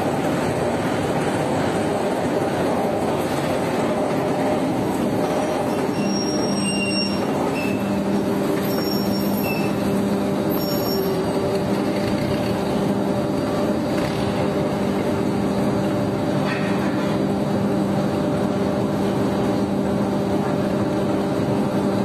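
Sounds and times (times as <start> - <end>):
rolling mill machine noise: 0.0 - 22.0
high squeaks: 5.8 - 8.0, 8.6 - 9.9, 10.5 - 11.3.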